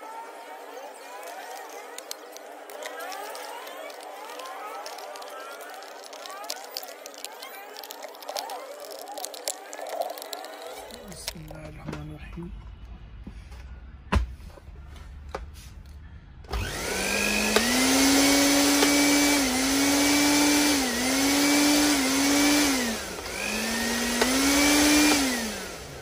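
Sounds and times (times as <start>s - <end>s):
blender motor whining: 1.4s - 11.4s, 16.5s - 26.0s.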